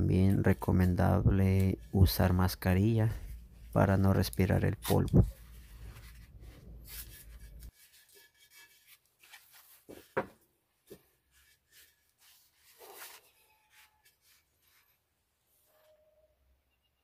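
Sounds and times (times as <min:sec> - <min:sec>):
hands rubbing clay pot: 0:00.0 - 0:15.0
tape being smoothed: 0:03.1 - 0:10.2, 0:10.9 - 0:15.0.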